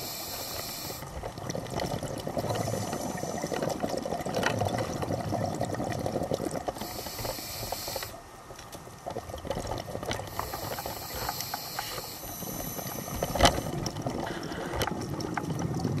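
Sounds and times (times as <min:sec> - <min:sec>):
regulator hissing inhalations: 0:00.0 - 0:01.0, 0:06.8 - 0:08.2, 0:10.3 - 0:13.7
bubbly gurgling of exhaled air: 0:00.0 - 0:08.2, 0:09.0 - 0:16.0.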